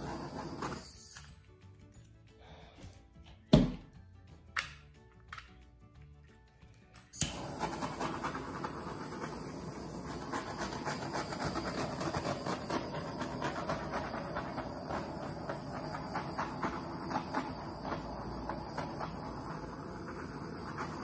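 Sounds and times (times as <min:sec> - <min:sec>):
torch flame hissing: 0:00.0 - 0:01.4, 0:07.2 - 0:21.0
torch igniting click: 0:07.0 - 0:21.0.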